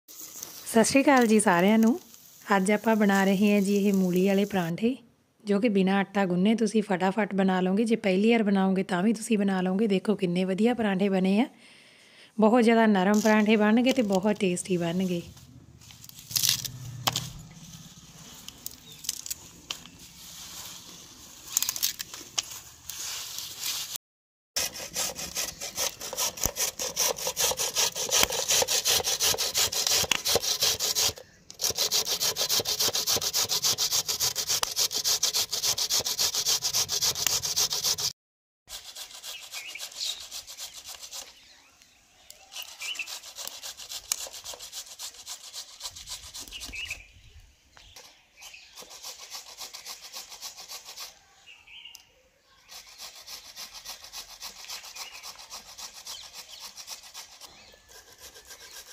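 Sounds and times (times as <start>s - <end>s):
radish grated on steel grater: 24.6s - 38.1s, 52.7s - 58.9s.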